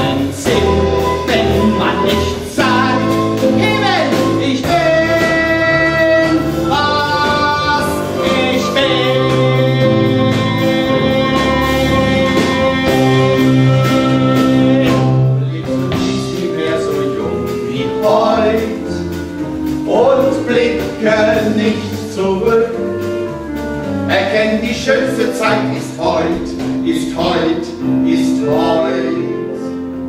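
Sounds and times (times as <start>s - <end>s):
voices singing: 0.0s - 23.0s
live band playing: 0.0s - 30.0s.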